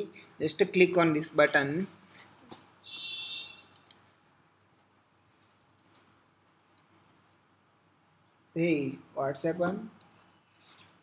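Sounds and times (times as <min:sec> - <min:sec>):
faint computer mouse clicks: 0:02.1 - 0:04.0, 0:04.6 - 0:05.0, 0:05.6 - 0:07.2, 0:08.2 - 0:08.9.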